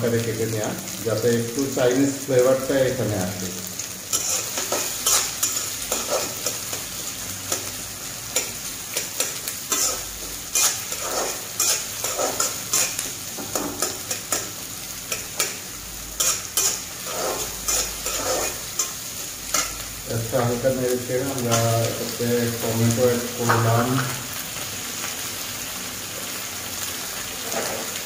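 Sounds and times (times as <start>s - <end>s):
onions sizzling in oil: 0.0s - 28.0s
metal spatula scraping pan: 4.1s - 6.9s, 8.3s - 15.6s, 16.2s - 19.8s, 27.4s - 28.0s.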